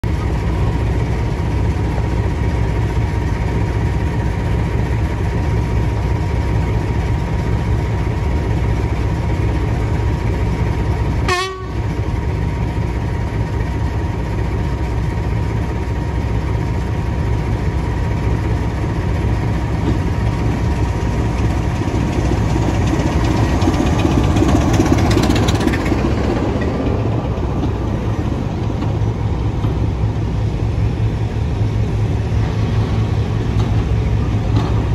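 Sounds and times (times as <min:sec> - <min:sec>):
diesel locomotive engine passing: 0:00.0 - 0:34.9.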